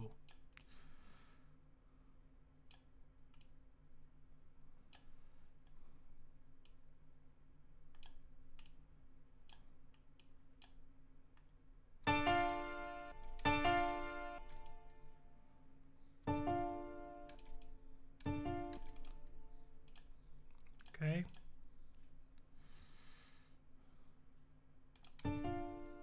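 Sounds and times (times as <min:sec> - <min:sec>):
faint steady low hum: 0:00.0 - 0:26.0
computer mouse clicks: 0:02.6 - 0:03.6, 0:04.9 - 0:05.8, 0:06.6 - 0:06.9, 0:07.9 - 0:08.8, 0:09.4 - 0:11.5, 0:14.5 - 0:14.8, 0:17.3 - 0:22.1, 0:24.9 - 0:25.4
loud keyboard chords: 0:12.1 - 0:14.8, 0:16.3 - 0:17.5, 0:18.3 - 0:19.2, 0:25.2 - 0:26.0.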